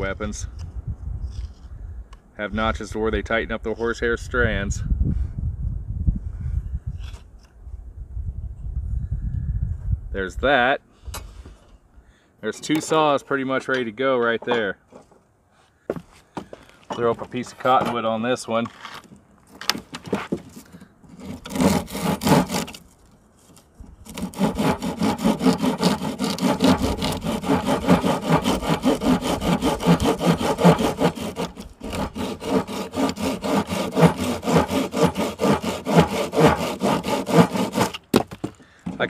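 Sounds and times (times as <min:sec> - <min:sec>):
hand saw rasping through branch: 0:20.5 - 0:22.8, 0:24.0 - 0:38.0.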